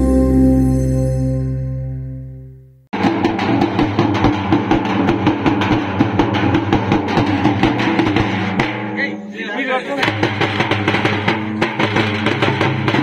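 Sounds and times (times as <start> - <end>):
large drums beaten fast: 3.0 - 13.0.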